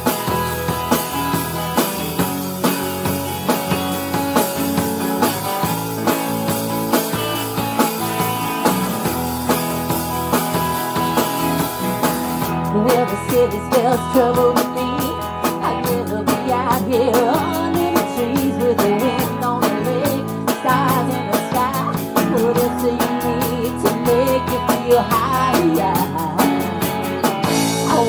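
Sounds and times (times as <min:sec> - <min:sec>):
acoustic guitar: 0:00.0 - 0:28.0
drum kit: 0:00.0 - 0:28.0
electric guitar: 0:00.0 - 0:28.0
woman singing: 0:12.6 - 0:26.9, 0:27.6 - 0:28.0.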